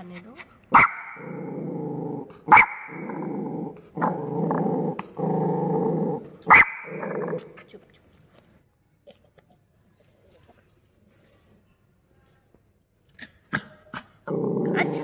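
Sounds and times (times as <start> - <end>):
dog barking: 0.7 - 1.4, 2.5 - 3.2, 6.4 - 7.2
dog growling: 1.2 - 7.7, 14.2 - 15.0.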